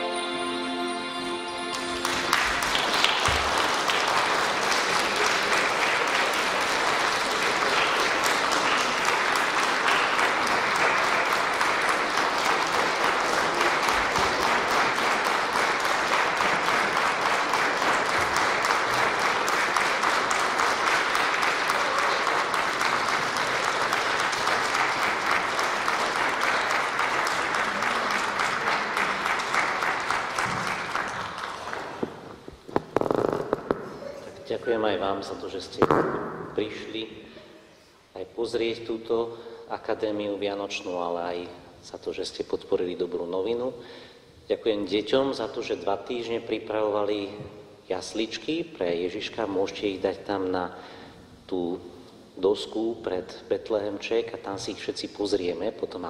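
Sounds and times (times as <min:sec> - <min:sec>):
audience applause: 0:01.8 - 0:34.2.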